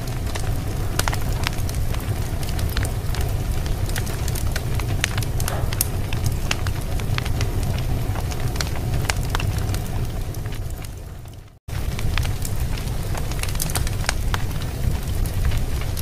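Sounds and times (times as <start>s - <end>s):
low rumble: 0.0s - 16.0s
wood fire crackling and popping: 0.0s - 16.0s.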